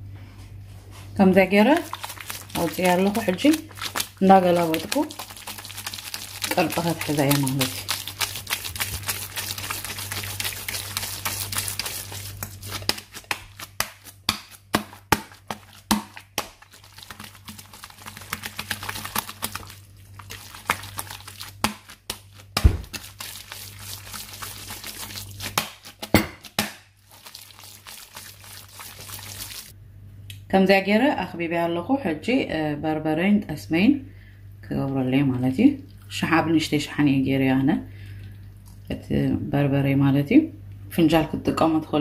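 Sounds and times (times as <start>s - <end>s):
heavy thump: 22.6s - 22.9s.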